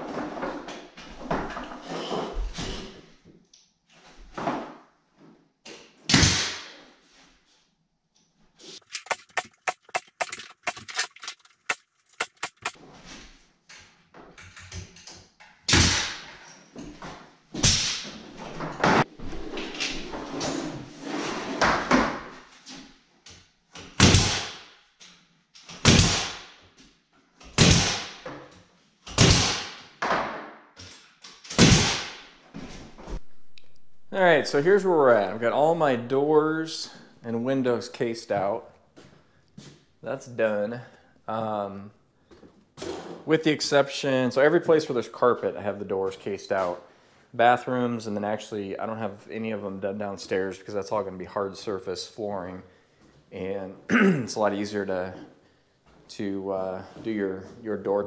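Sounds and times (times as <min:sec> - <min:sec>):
fast sharp clicks: 0:08.8 - 0:12.8.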